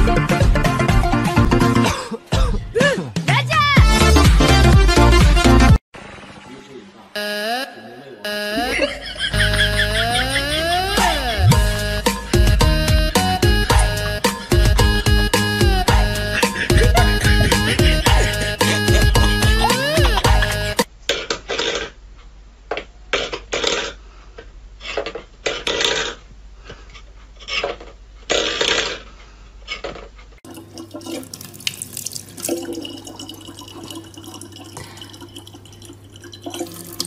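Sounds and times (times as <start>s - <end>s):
tap water running into plastic bottle: 30.5s - 37.0s.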